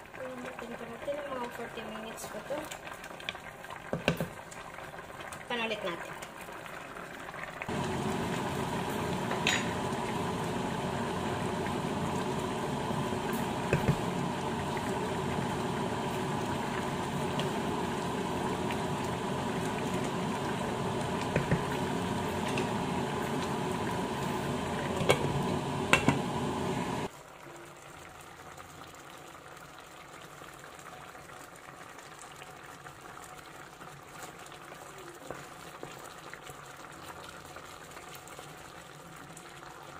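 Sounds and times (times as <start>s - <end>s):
sauce bubbling in a pan: 0.0s - 39.9s.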